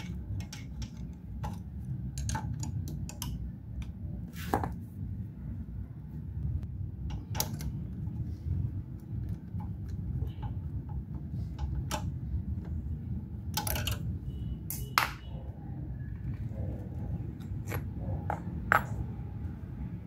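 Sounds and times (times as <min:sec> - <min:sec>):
metal parts and tools clinking: 0:00.0 - 0:03.4, 0:13.5 - 0:15.3, 0:17.4 - 0:19.1.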